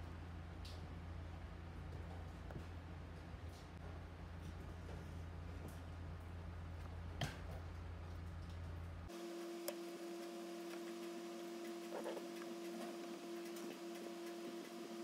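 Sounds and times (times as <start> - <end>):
steady humming tone: 9.0 - 15.0.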